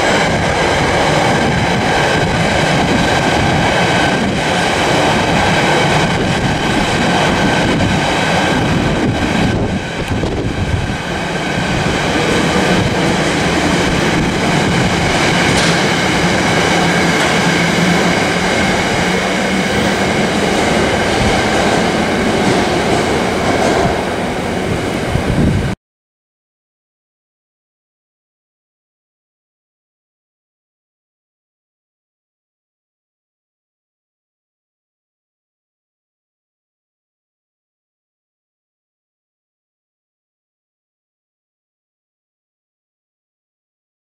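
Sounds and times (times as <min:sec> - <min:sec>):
freight train wheels rumbling: 0:00.0 - 0:25.8.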